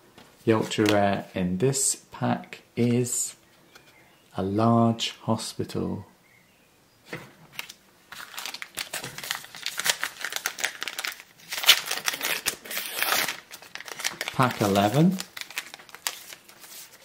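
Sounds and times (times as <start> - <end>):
foil wrapper tearing and crinkling: 7.6 - 17.0.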